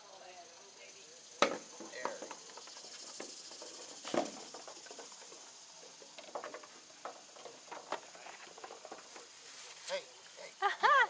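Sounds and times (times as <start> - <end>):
faint steady high hiss: 0.0 - 11.0.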